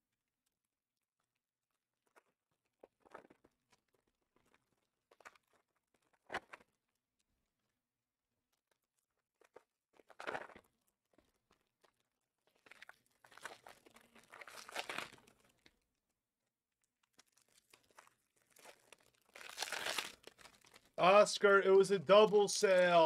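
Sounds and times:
card wrappers crinkling and tearing: 0:12.5 - 0:15.7, 0:17.0 - 0:21.0.

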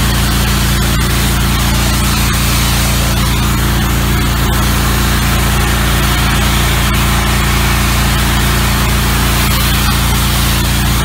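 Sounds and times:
pressure washer engine running: 0:00.0 - 0:11.0
water jet blasting into soil: 0:00.0 - 0:11.0.

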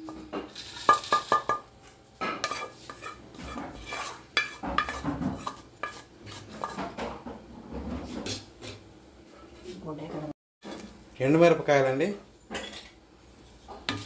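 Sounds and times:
wooden spatula scraping frying pan: 0:00.1 - 0:01.6, 0:02.2 - 0:08.8.

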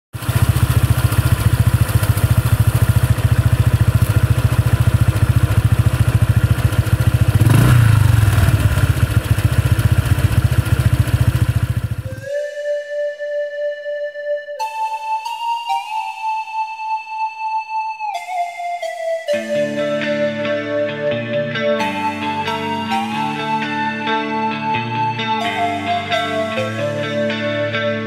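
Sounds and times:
motorcycle engine revving: 0:00.2 - 0:12.3.

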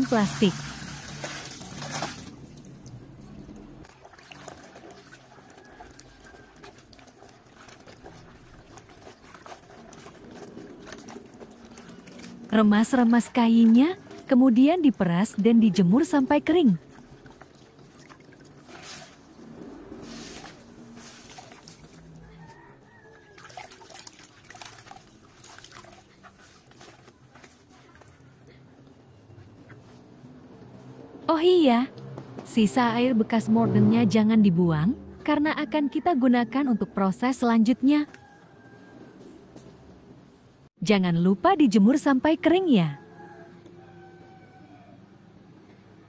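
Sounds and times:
wet fabric squelching: 0:00.0 - 0:03.1, 0:03.8 - 0:31.0
small splashes and drips: 0:00.0 - 0:14.3, 0:16.5 - 0:28.9.

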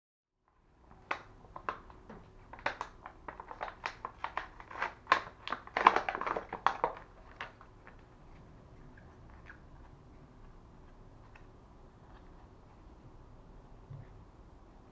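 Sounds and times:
plastic packaging crinkling: 0:00.8 - 0:08.2.

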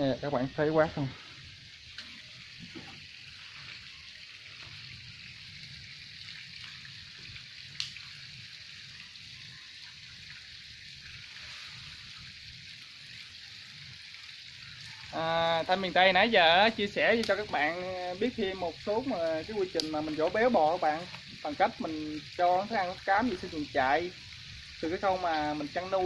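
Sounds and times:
steady background hiss: 0:00.0 - 0:09.6, 0:10.2 - 0:26.0.

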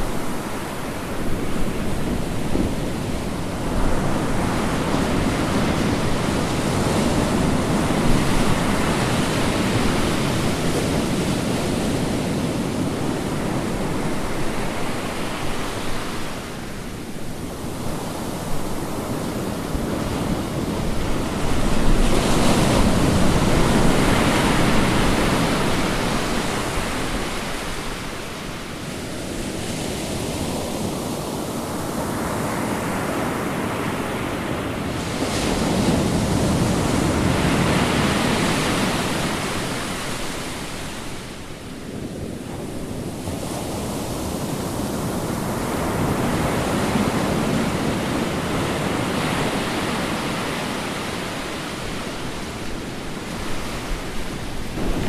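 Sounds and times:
ocean waves breaking: 0:00.0 - 0:55.0
wave crash: 0:52.2 - 0:55.0.

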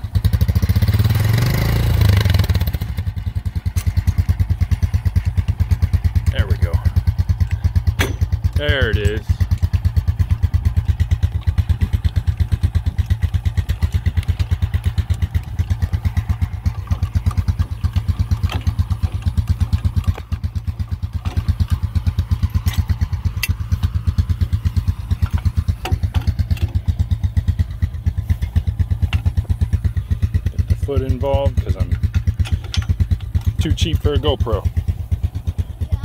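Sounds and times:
atv engine idling: 0:00.0 - 0:36.0
trailer jack metallic clicks: 0:03.0 - 0:05.2, 0:07.4 - 0:08.6, 0:09.4 - 0:23.8, 0:25.1 - 0:27.1, 0:28.4 - 0:29.5, 0:31.9 - 0:34.3.

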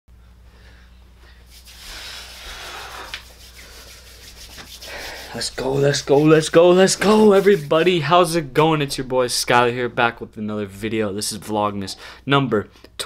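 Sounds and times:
low steady hum: 0:00.1 - 0:13.0
soft rubbing and rustling: 0:01.3 - 0:08.0.

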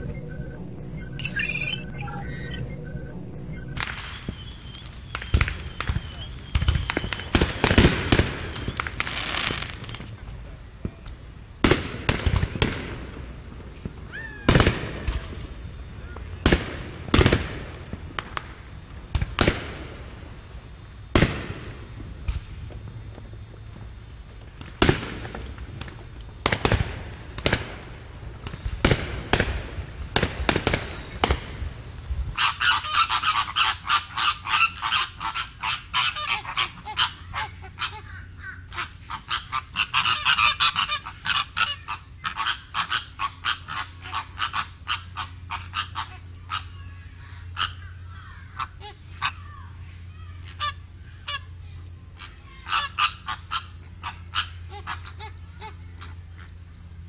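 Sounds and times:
flamingos honking: 0:00.0 - 0:03.8, 0:32.4 - 0:46.7.

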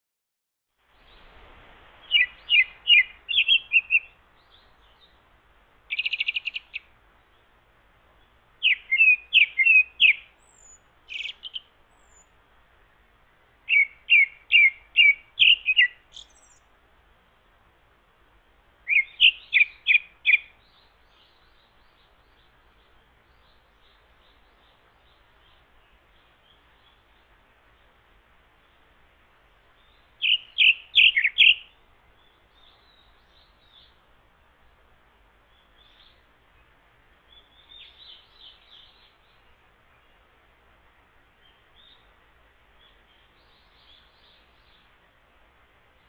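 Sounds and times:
thrush whistling song: 0:02.0 - 0:05.2, 0:05.9 - 0:06.9, 0:08.2 - 0:12.4, 0:13.7 - 0:16.7, 0:18.8 - 0:27.2, 0:29.8 - 0:34.0.

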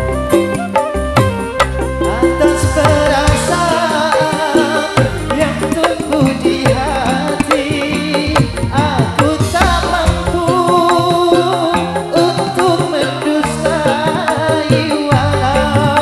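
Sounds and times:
band playing live: 0:00.0 - 0:16.0
hand drums: 0:00.0 - 0:16.0.

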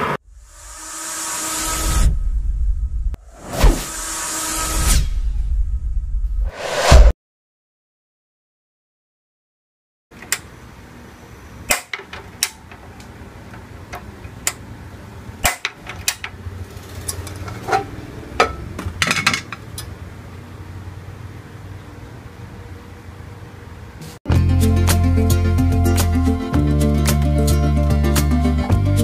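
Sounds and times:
metal cookware knocking: 0:17.2 - 0:19.6.

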